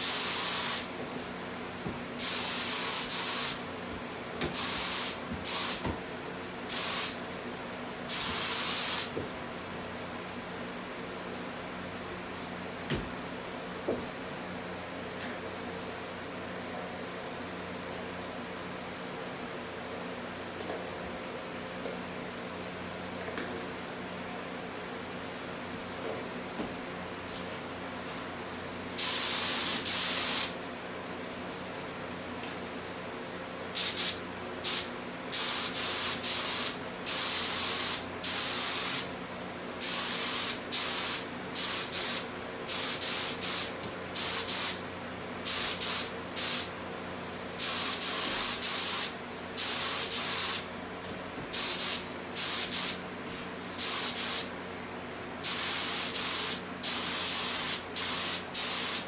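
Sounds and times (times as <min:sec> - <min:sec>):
spray gun hissing: 0:00.0 - 0:00.9, 0:02.2 - 0:03.6, 0:04.5 - 0:05.8, 0:06.7 - 0:07.2, 0:08.1 - 0:09.2, 0:29.0 - 0:30.6, 0:33.7 - 0:39.1, 0:39.8 - 0:44.8, 0:45.4 - 0:46.7, 0:47.6 - 0:50.7, 0:51.5 - 0:53.0, 0:53.8 - 0:54.6, 0:55.4 - 0:59.0.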